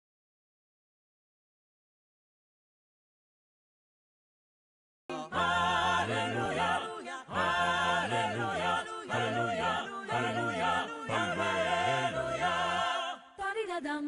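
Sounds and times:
voices singing a wordless tune: 0:05.1 - 0:14.0.

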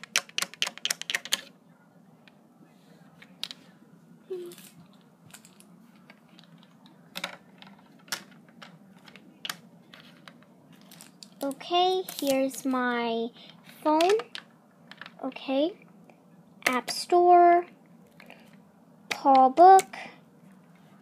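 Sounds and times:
plastic figurines tapping hard surface: 0:00.0 - 0:01.5.

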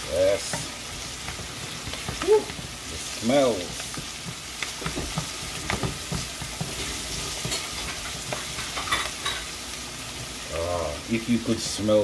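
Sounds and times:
vegetables sizzling in a frying pan: 0:00.0 - 0:12.0
utensil scraping and knocking pan: 0:04.8 - 0:09.4.

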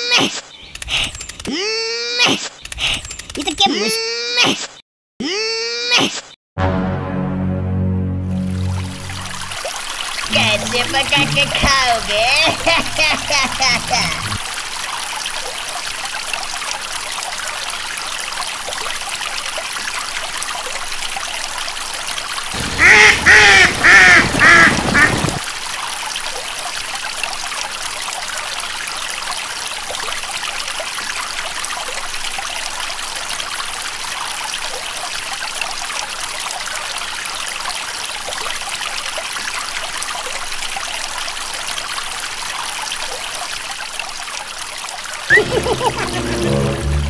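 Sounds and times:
water trickling: 0:08.3 - 0:47.0
duck quacking loudly: 0:22.6 - 0:25.2.

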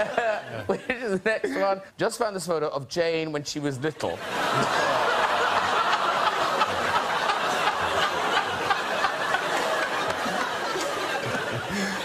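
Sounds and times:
audience laughing: 0:00.0 - 0:01.0, 0:04.0 - 0:12.0.

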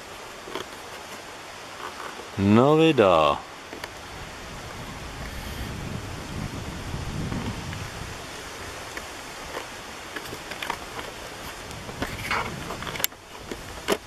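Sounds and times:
wind rumbling on microphone: 0:03.8 - 0:14.0
light rustles and clicks: 0:08.8 - 0:14.0.

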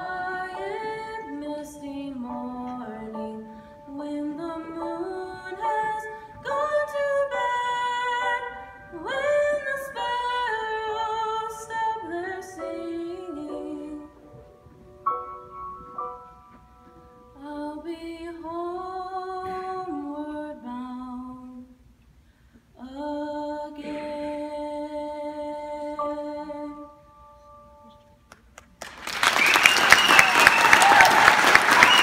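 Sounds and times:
woman singing: 0:00.0 - 0:14.5, 0:17.4 - 0:21.8, 0:22.8 - 0:27.1
grand piano chords: 0:00.0 - 0:20.1, 0:23.8 - 0:28.2
applause: 0:28.3 - 0:32.0.

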